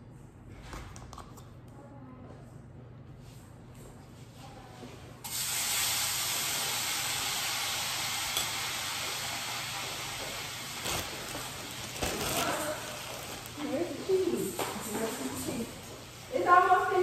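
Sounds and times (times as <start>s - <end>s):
sandwich sizzling in a pan: 5.3s - 13.7s.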